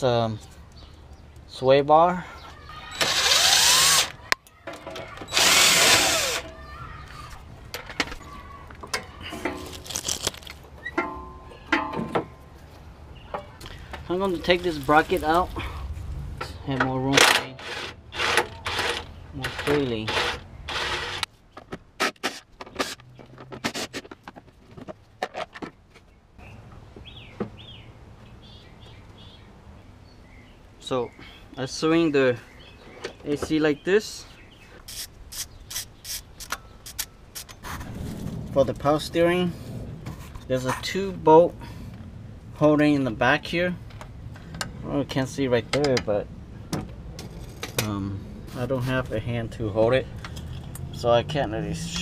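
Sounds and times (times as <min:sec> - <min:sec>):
bird chirping: 0:00.3 - 0:01.4, 0:26.0 - 0:31.5, 0:32.3 - 0:37.2
cordless impact wrench spinning: 0:03.0 - 0:04.2, 0:05.3 - 0:06.5
plastic and metal parts clattering: 0:18.2 - 0:25.8.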